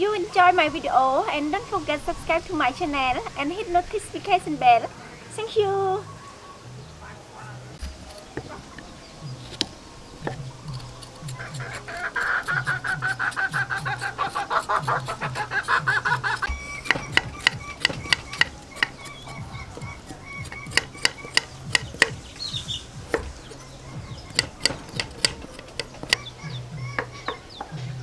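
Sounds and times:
chicken clucking: 6.1 - 28.0
cleaver scraping root skin: 7.8 - 27.2
cleaver knocking on wooden board: 9.4 - 10.6, 14.7 - 26.3, 26.9 - 27.8.

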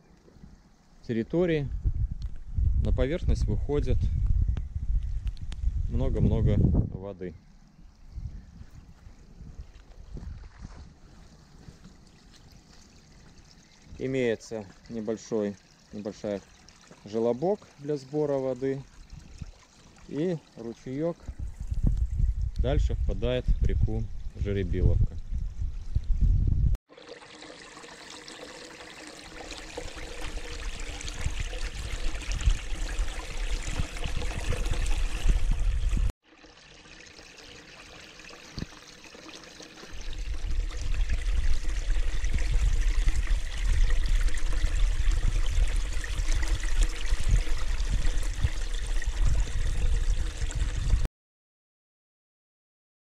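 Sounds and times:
water splashing into pool: 10.2 - 20.9, 26.9 - 51.0.

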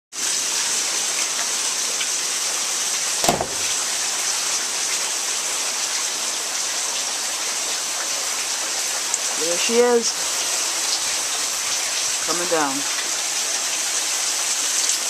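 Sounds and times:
heavy rain falling: 0.2 - 15.0
thump: 3.2 - 3.8.

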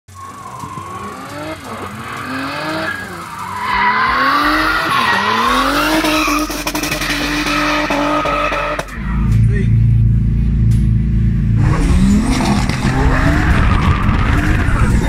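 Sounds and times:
car engine revving: 0.1 - 15.0.

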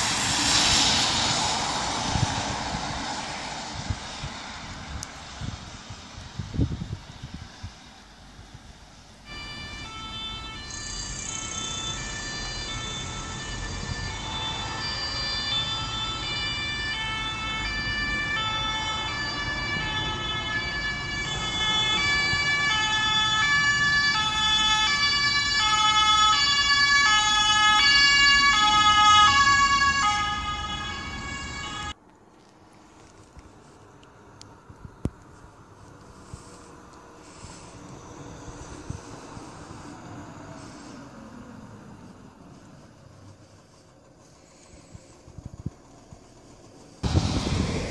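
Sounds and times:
two-tone sirens: 0.0 - 33.8, 34.5 - 47.9.

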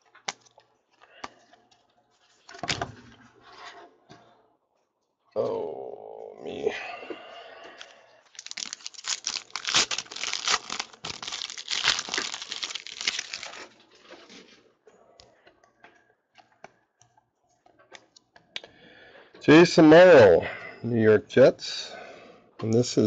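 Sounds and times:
foil wrapper tearing and crinkling: 8.3 - 13.8.

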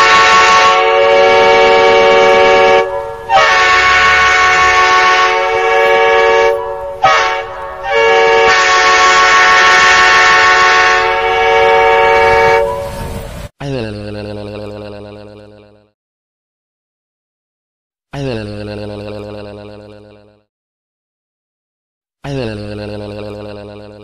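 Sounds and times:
train air horn blasts: 0.0 - 13.1.

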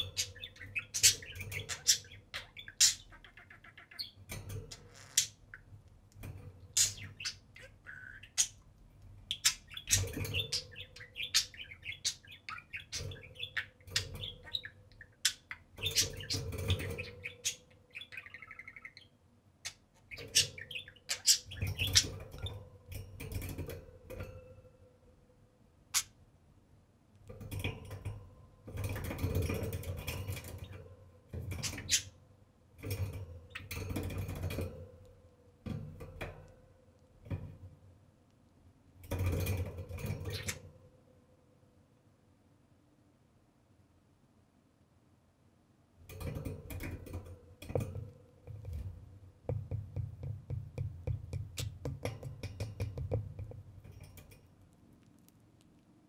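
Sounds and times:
budgerigars chirping: 0.0 - 5.7, 6.7 - 8.6, 9.2 - 22.5, 40.2 - 40.6
sharp clicks and taps: 49.5 - 55.8.

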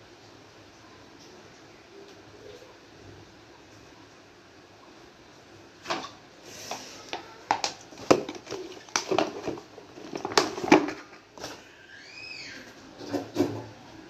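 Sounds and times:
plastic packet rustling: 6.6 - 11.7.

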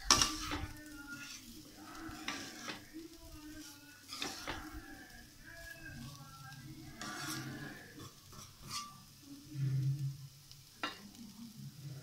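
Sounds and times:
spatula scraping vegetables in pan: 0.0 - 11.2.

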